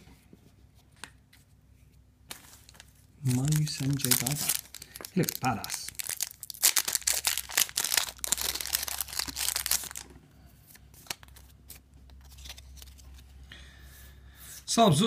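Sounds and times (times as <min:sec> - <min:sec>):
cards being handled: 0:02.3 - 0:13.3
foil wrapper tearing and crinkling: 0:02.6 - 0:10.1.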